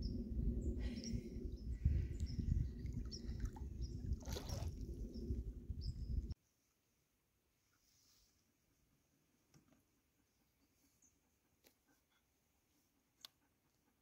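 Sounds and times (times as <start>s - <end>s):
small birds chirping: 0.0s - 6.2s
wind rumbling on microphone: 0.0s - 6.4s.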